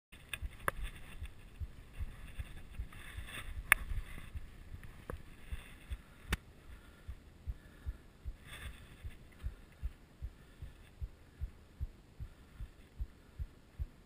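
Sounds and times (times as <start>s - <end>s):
fast heartbeat thumps: 0.2s - 14.0s.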